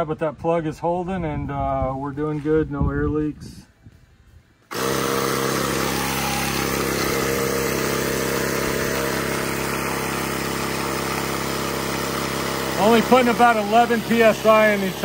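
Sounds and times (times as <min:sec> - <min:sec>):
tyre inflator humming: 0:04.6 - 0:15.0.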